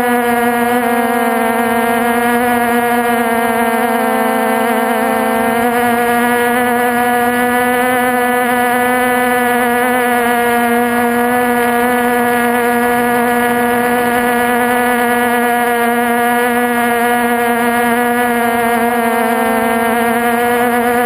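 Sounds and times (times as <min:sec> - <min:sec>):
drone motors humming: 0:00.0 - 0:21.0.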